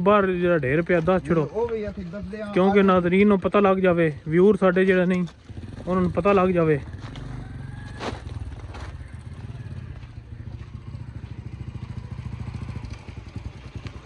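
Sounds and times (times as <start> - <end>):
small engine humming: 6.9 - 14.0.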